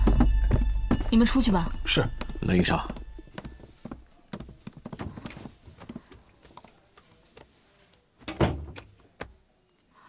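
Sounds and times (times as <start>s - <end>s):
boots walking on wooden floor: 0.0s - 7.5s.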